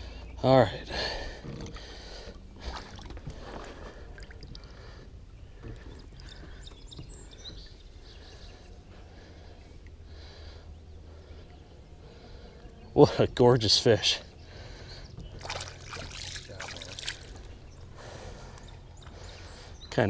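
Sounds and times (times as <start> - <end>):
water splashing and lapping: 1.0 - 10.4, 14.5 - 19.7.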